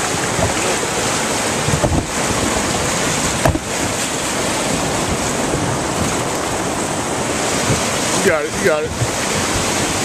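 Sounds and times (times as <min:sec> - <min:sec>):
whitewater rapids rushing: 0:00.0 - 0:10.0
short knocks: 0:03.4 - 0:04.0.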